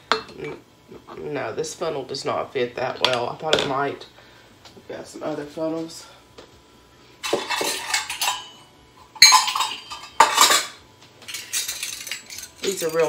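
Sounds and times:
metal utensils clattering: 7.2s - 13.0s.

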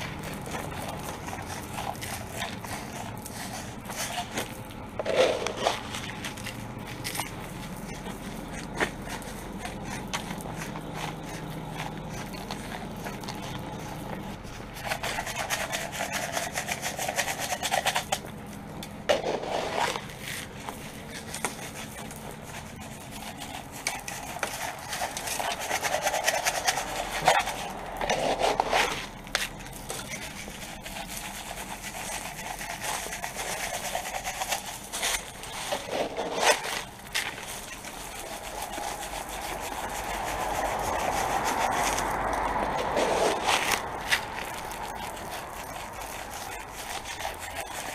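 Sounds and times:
salt granules pattering on concrete: 0.0s - 4.6s, 19.7s - 47.9s.

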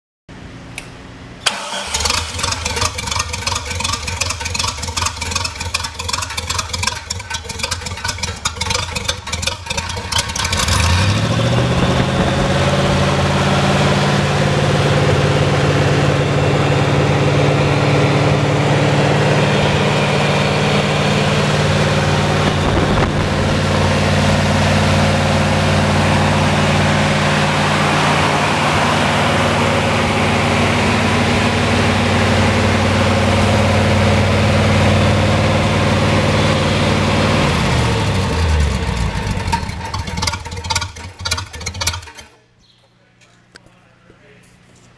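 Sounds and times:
starter motor cranking engine: 1.4s - 13.3s, 37.5s - 42.4s
engine revving and running: 1.4s - 42.3s.

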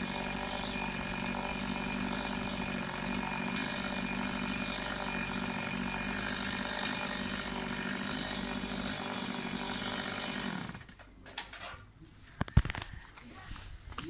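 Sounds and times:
power saw cutting wood: 0.0s - 11.0s.

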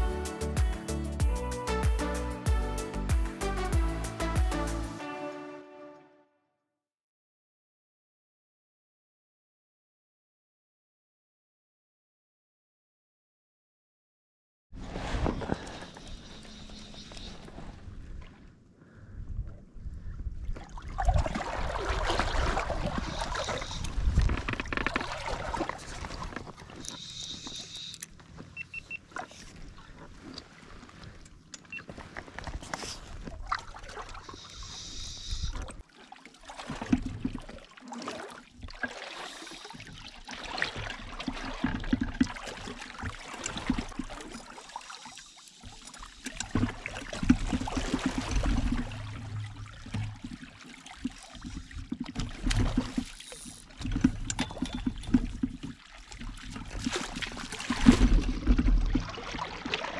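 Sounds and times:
water lapping against pontoons: 14.8s - 18.6s, 20.4s - 59.9s
fishing rod and reel clicks: 23.1s - 25.2s, 26.7s - 28.8s, 34.3s - 35.6s, 53.0s - 55.2s.

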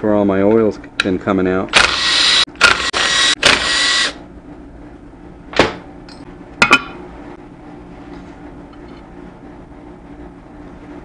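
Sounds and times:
power driver whirring: 1.7s - 4.2s
metal clank on bench: 6.1s - 7.0s.

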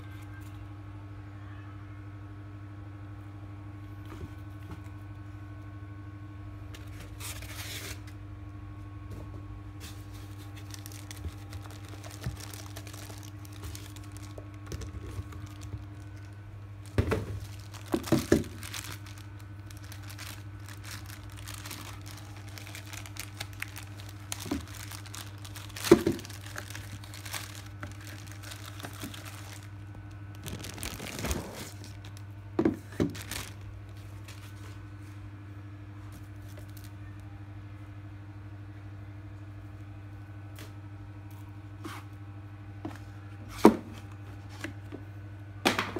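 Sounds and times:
steady low hum: 0.0s - 45.9s
plastic packaging crinkling: 9.8s - 34.8s, 36.1s - 37.0s.

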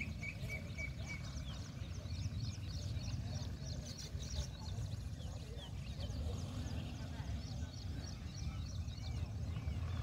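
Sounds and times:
birds chirping: 0.0s - 10.0s
steady low rumble: 0.0s - 10.0s.

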